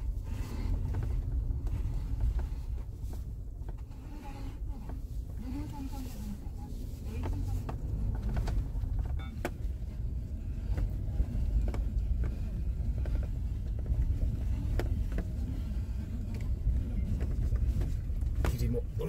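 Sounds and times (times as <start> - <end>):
engine and tyre rumble: 0.0 - 19.0
clicks and knocks over bumps: 7.0 - 19.0.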